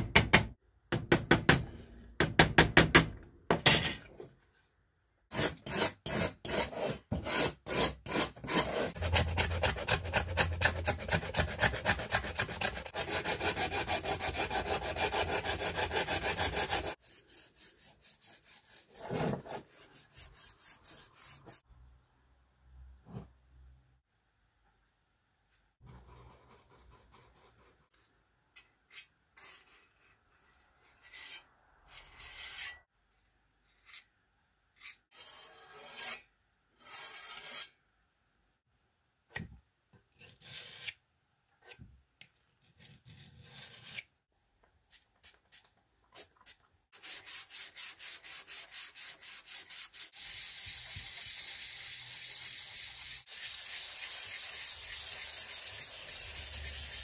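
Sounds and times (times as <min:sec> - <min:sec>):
hand sanding metal: 0:05.4 - 0:21.6, 0:47.0 - 0:57.0.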